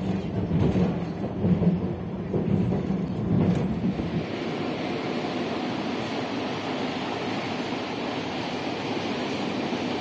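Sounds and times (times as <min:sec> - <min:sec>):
diesel locomotive engine drone: 0:00.0 - 0:10.0
wind-like hiss: 0:03.6 - 0:10.0.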